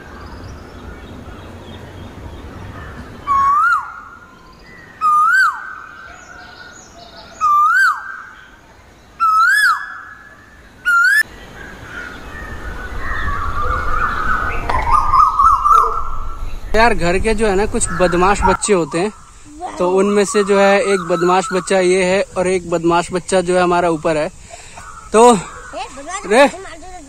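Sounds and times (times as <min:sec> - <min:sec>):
loud whistled bird call: 0:02.8 - 0:08.6, 0:09.2 - 0:16.8, 0:17.8 - 0:22.2.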